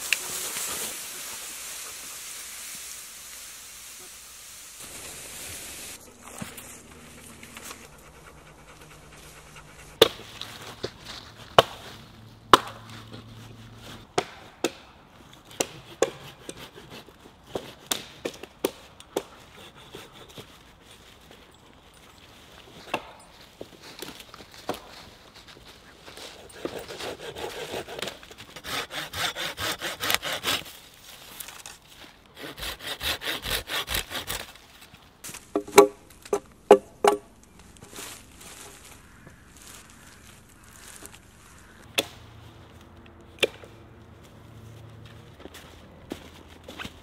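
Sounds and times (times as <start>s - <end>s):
branches rustling through dry leaves: 0.0s - 14.0s, 20.6s - 27.1s, 30.2s - 32.3s, 34.1s - 35.5s, 37.3s - 43.0s.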